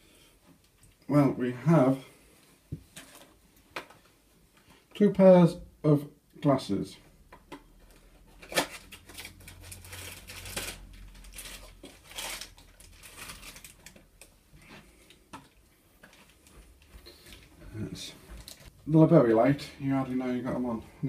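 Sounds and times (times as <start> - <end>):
packaging rustling and crinkling: 7.8 - 14.4, 18.2 - 18.7.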